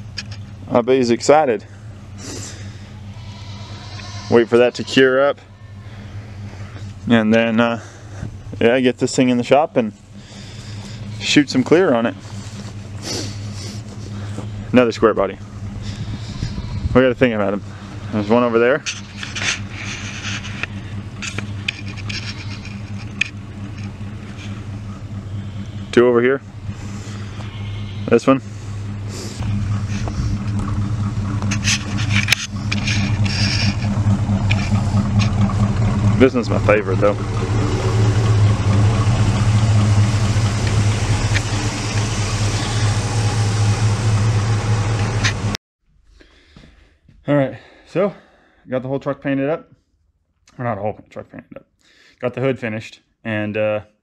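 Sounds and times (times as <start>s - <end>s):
low motor hum: 0.0s - 45.6s
pickup engine idling: 0.0s - 45.6s
footsteps crunching on dirt: 10.0s - 14.6s, 27.0s - 36.2s.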